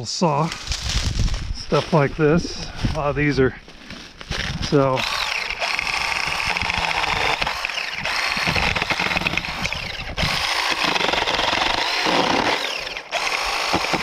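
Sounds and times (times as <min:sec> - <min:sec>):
mini chainsaw cutting wood: 0:04.4 - 0:14.0.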